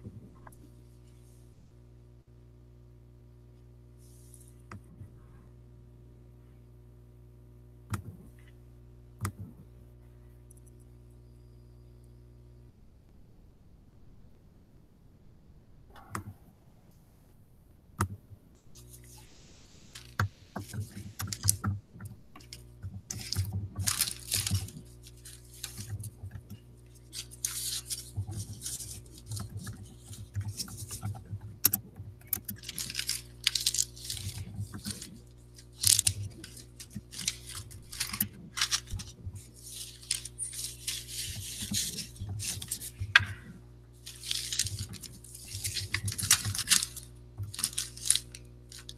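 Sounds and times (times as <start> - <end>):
low steady hum: 0.0 - 48.9
rustling and clicking: 19.9 - 48.9.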